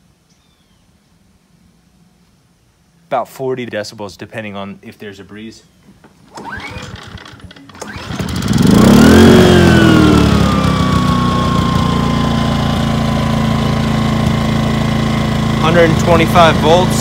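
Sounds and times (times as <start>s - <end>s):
generator engine starting and running: 6.1s - 17.0s.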